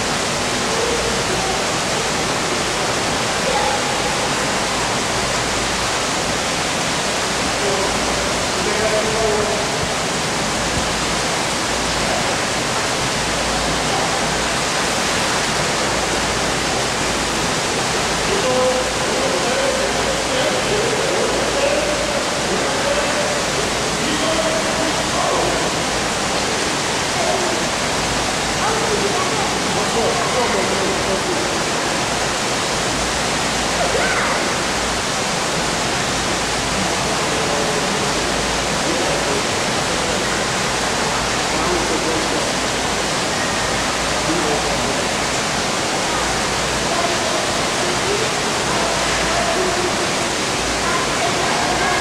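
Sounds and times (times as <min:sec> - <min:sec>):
pool water rushing and splashing: 0:00.0 - 0:52.0
faint voice: 0:00.6 - 0:04.8, 0:33.7 - 0:34.8, 0:46.8 - 0:52.0.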